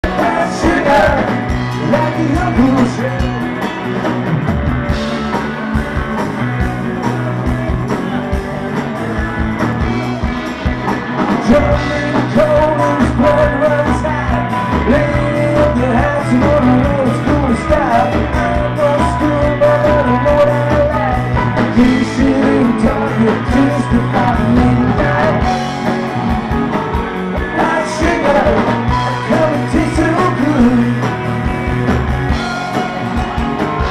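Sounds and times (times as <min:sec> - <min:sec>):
man singing: 0:00.0 - 0:03.6, 0:11.3 - 0:26.0, 0:27.4 - 0:31.2
drums: 0:00.0 - 0:33.9
electric guitars: 0:00.0 - 0:33.9
steady low bass line: 0:00.0 - 0:33.9.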